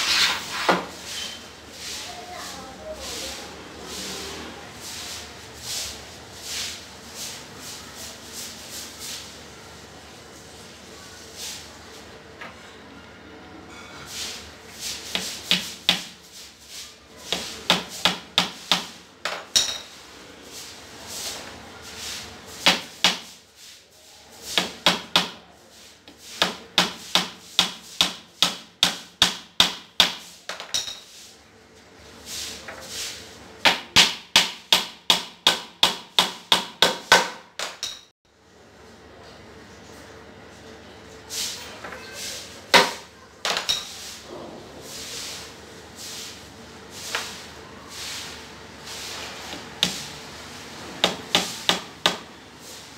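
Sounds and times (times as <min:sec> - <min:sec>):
hammer striking wood: 0:17.7 - 0:19.4, 0:22.6 - 0:23.3, 0:26.4 - 0:30.6, 0:33.6 - 0:38.0, 0:42.7 - 0:43.7, 0:51.0 - 0:52.3.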